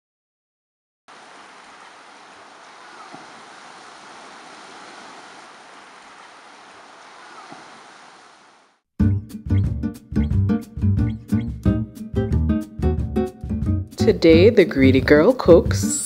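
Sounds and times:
surf washing over sand: 0:01.1 - 0:08.8.

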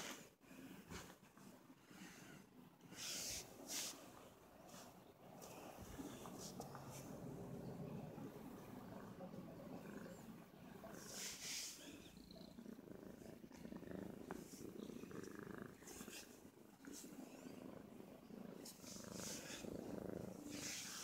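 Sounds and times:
cat purring: 0:00.0 - 0:21.0
hand rubbing fur: 0:03.0 - 0:04.0.

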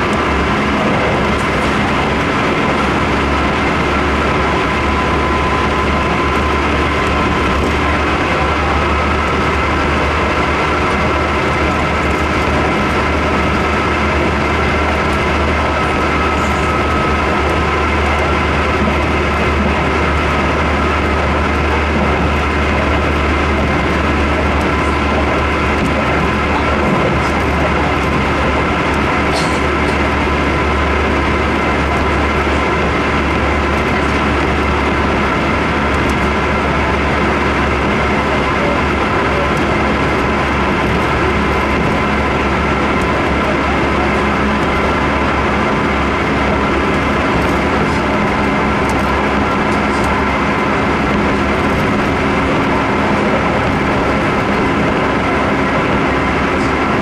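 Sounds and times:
train wheels rumbling on rail: 0:00.0 - 0:57.0.

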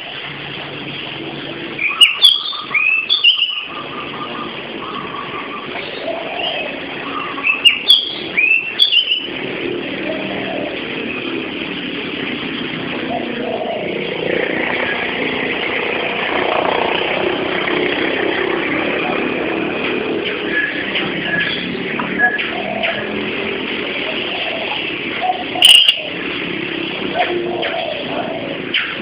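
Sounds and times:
outdoor background noise: 0:00.0 - 0:29.0
high-pitched squeals: 0:25.4 - 0:26.3.

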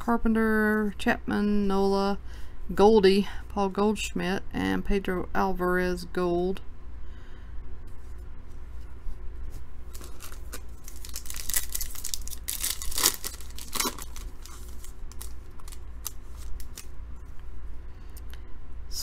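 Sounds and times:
cards rustling: 0:09.9 - 0:16.9
foil wrapper tearing and crinkling: 0:09.9 - 0:16.9.

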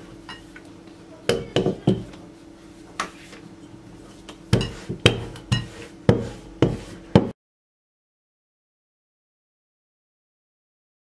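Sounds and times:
rolling pin knocking on worktop: 0:01.3 - 0:02.2, 0:04.5 - 0:07.4.

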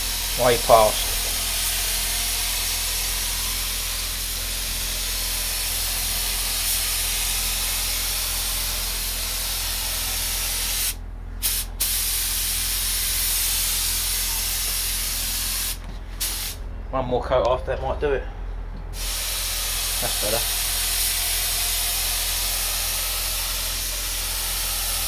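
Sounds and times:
spray gun hissing: 0:00.0 - 0:16.6, 0:19.0 - 0:25.0.

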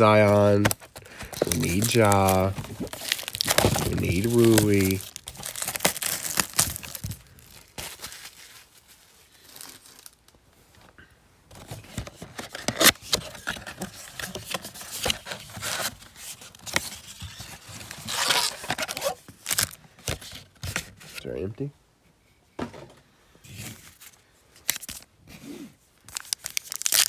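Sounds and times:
foil crinkling and rustling: 0:00.0 - 0:10.8, 0:11.6 - 0:20.4, 0:26.1 - 0:27.0
paper tearing: 0:01.4 - 0:07.0, 0:18.0 - 0:19.7.

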